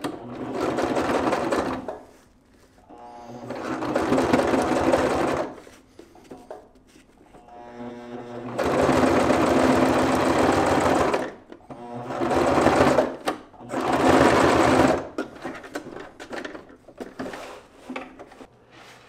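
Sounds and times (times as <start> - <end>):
sewing machine stitching: 0.0 - 2.0, 2.9 - 5.6, 7.5 - 15.2.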